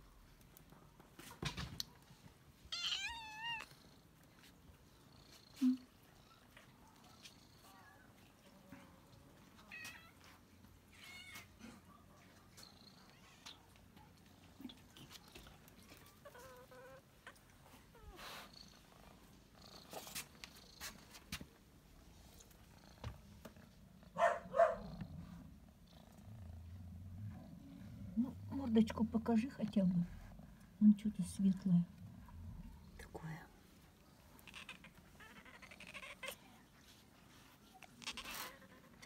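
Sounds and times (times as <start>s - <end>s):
cats meowing: 2.7s - 3.8s, 9.6s - 11.8s, 14.6s - 18.5s, 34.3s - 36.7s, 37.7s - 39.0s
cat purring: 11.6s - 39.0s.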